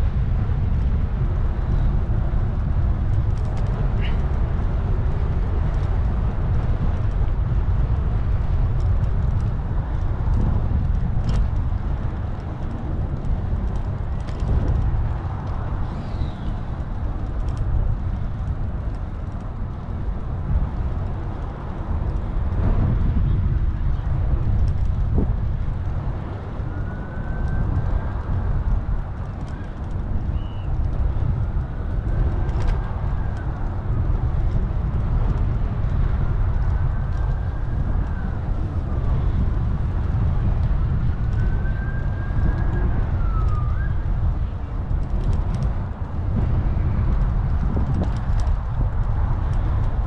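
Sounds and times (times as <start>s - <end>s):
wind rumbling on microphone: 0.0s - 50.0s
distant siren wailing: 41.4s - 44.1s.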